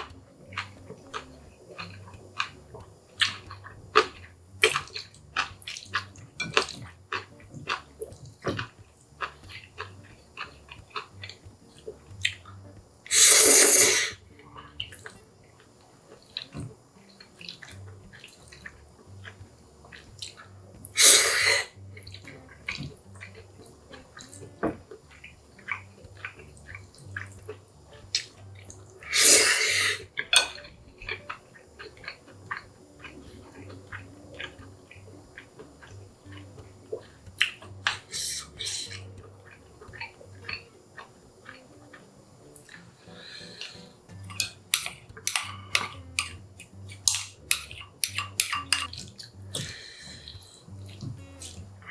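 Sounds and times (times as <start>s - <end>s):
wet chewing: 0.0s - 51.9s
noodles slurped: 13.1s - 14.2s, 28.2s - 30.0s
wooden chopsticks clicking: 43.6s - 46.4s, 47.0s - 49.7s.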